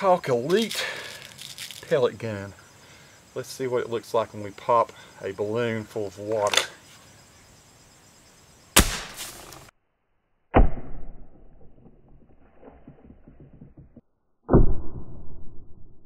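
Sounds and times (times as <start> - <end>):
water balloon bursting crack: 8.8 - 9.7.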